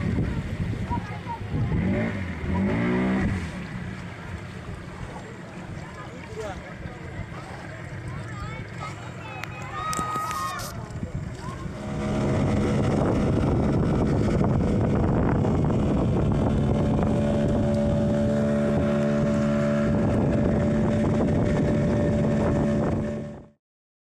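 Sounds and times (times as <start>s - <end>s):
wind rushing over microphone: 0.0s - 3.8s, 9.4s - 23.6s
boat motor running: 0.0s - 23.6s.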